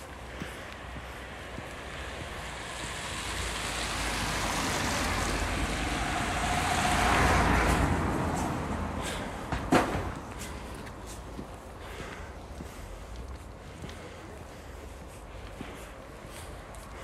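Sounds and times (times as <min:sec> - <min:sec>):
vehicle driving past: 0:01.3 - 0:10.3.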